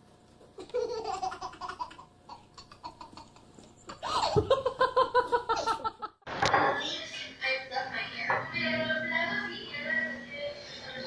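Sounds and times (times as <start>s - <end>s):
baby laughing: 0.5s - 6.0s.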